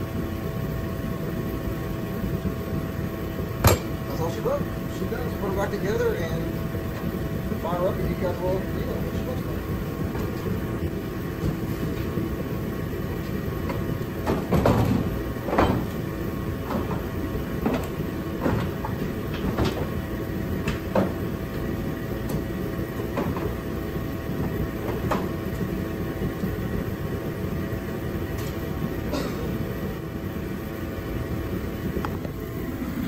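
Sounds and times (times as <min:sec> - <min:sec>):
steady hum: 0:00.0 - 0:33.0.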